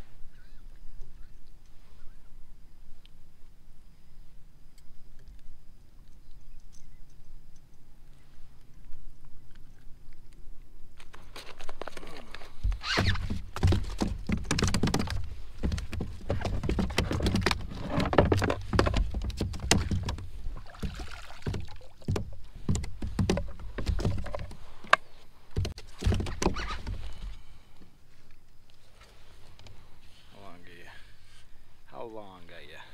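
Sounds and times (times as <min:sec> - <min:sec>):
fishing gear knocking in plastic kayak: 0:12.6 - 0:27.2
plastic board clacking: 0:13.0 - 0:20.2.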